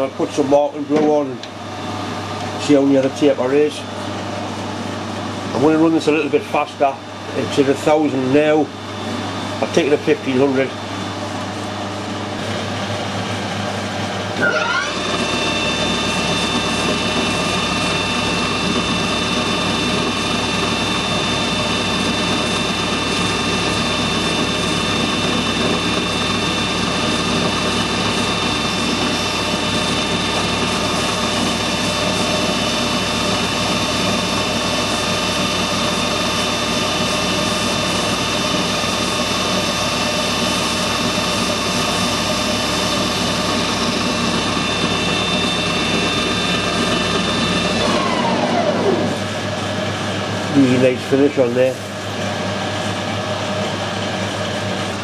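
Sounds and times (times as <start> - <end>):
metal lathe whining: 12.4 - 55.0.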